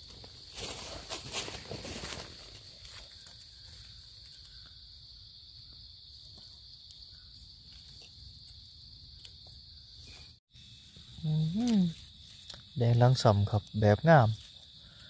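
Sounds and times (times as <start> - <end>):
rustles in leaf litter: 0.0 - 4.5
forest insects droning: 0.0 - 15.0.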